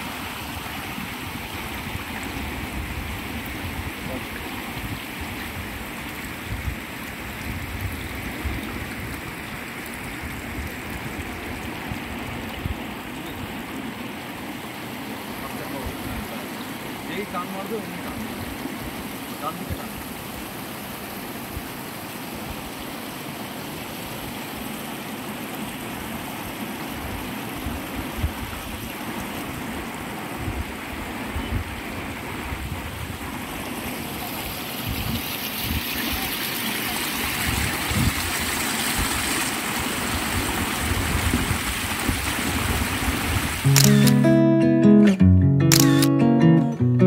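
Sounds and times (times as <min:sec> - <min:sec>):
wind rumbling on microphone: 0:00.0 - 0:14.0, 0:26.9 - 0:43.7
water rushing over rocks: 0:00.0 - 0:44.2.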